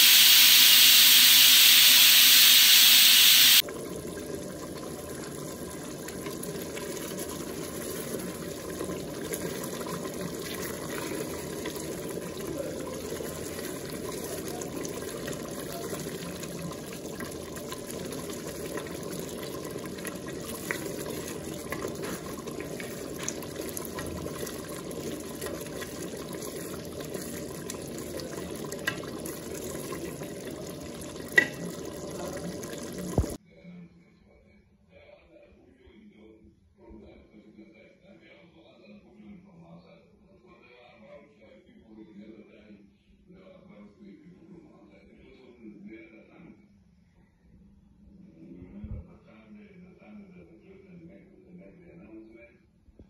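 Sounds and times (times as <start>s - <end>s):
curry bubbling in a pot: 3.4s - 33.4s
wooden spoon stirring in a pot: 4.1s - 33.4s.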